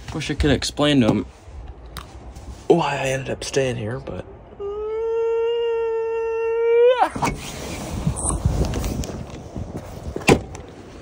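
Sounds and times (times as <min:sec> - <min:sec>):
rustling: 0:01.2 - 0:02.8.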